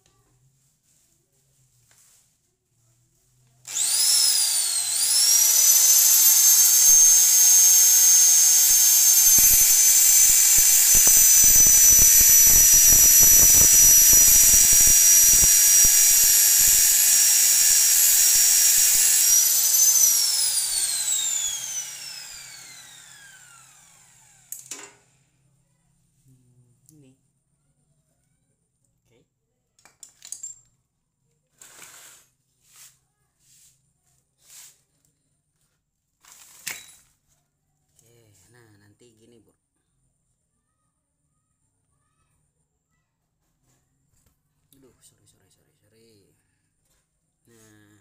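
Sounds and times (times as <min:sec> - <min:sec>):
grinder cutting metal: 0:03.7 - 0:24.6.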